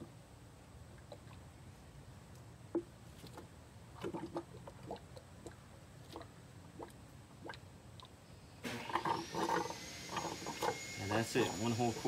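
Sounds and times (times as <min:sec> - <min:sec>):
fluid gurgling through a tube: 0:03.3 - 0:07.6, 0:08.7 - 0:10.8.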